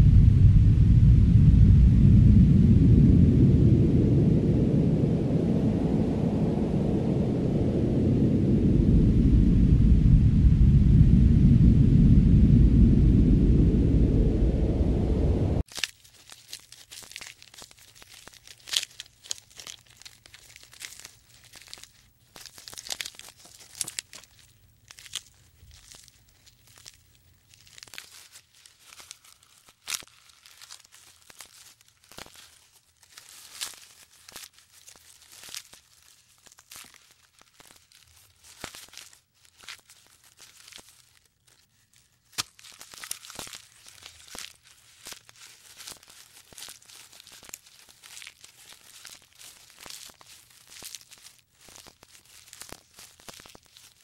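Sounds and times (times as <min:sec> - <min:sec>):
giraffe stripping and chewing leaves: 0:15.6 - 0:54.0.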